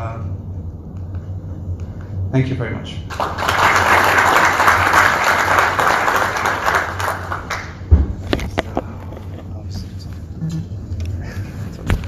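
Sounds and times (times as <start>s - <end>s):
audience applauding: 3.1s - 7.8s
loud thump: 7.9s - 8.3s.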